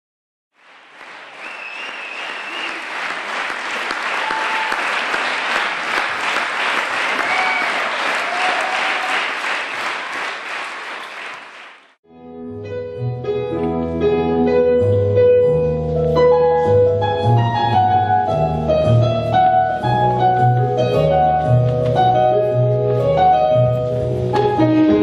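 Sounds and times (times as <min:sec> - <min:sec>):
audience applauding: 0:00.6 - 0:12.0
music: 0:12.0 - 0:25.0.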